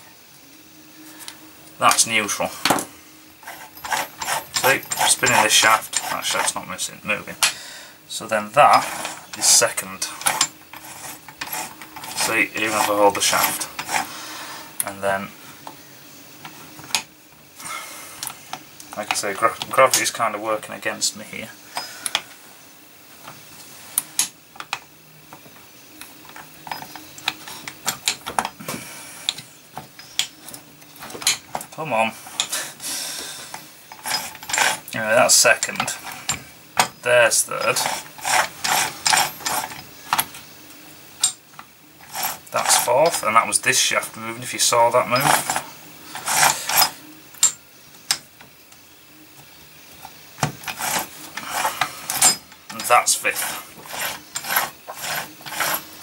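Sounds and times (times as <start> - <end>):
metal gears clinking: 3.4 - 6.8, 8.6 - 14.1, 26.2 - 28.6, 29.8 - 32.6, 33.5 - 40.4, 41.2 - 48.2, 50.0 - 56.0.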